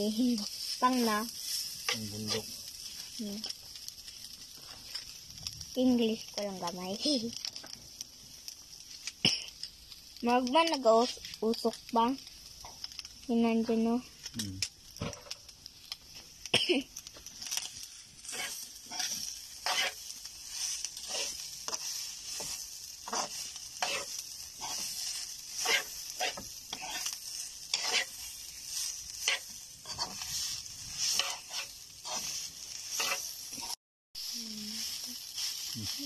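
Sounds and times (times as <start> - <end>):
steady high hiss: 0.0 - 14.8, 15.4 - 36.0
coconut sizzling in a wok: 0.0 - 36.0
utensil scraping a pan: 17.2 - 33.8.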